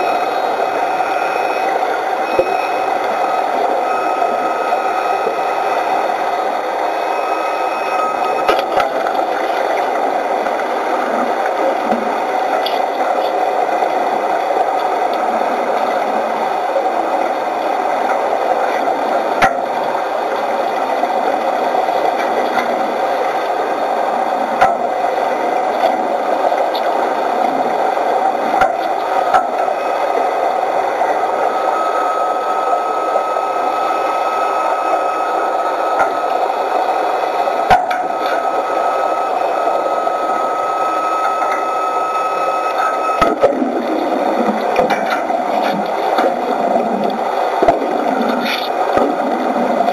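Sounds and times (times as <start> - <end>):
faint high whine: 0.0 - 49.9
underwater noise: 0.0 - 49.9.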